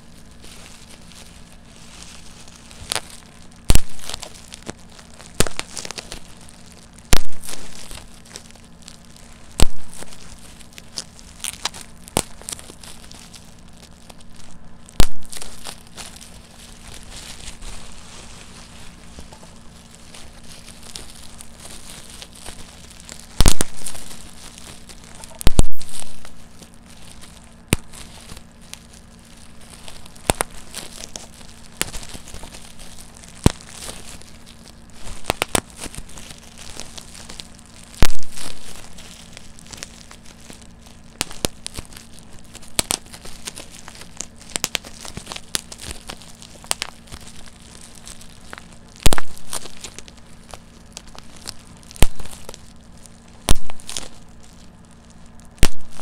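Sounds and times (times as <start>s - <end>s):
bubble wrap popping: 0.0s - 56.0s
plastic sheet crinkling: 0.0s - 56.0s.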